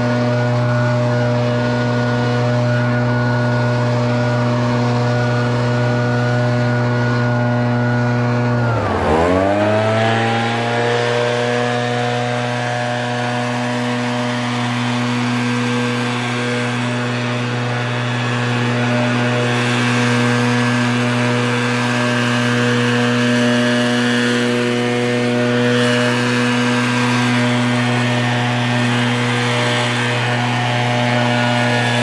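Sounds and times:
small two-stroke engine revving: 0.0 - 32.0.

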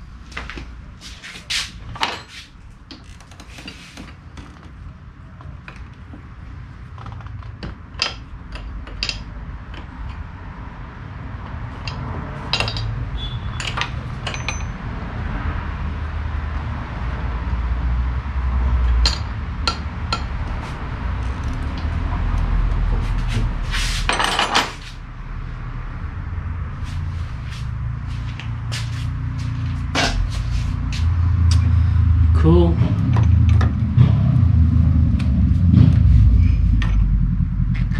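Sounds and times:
spanners clinking on metal fittings: 11.8 - 14.8
low rumble: 14.7 - 37.9.

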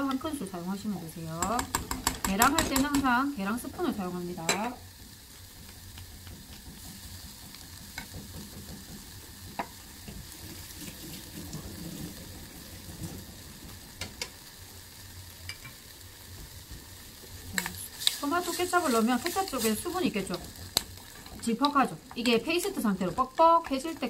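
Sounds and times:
food sizzling in a saucepan: 0.0 - 24.0
wooden spoon clicking on pan: 1.4 - 3.1.

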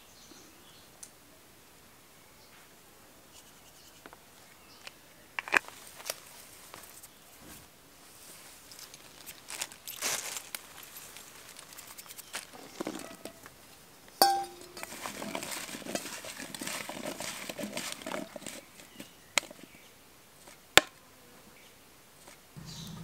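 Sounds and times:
enamel bowl ringing: 14.2 - 14.9.

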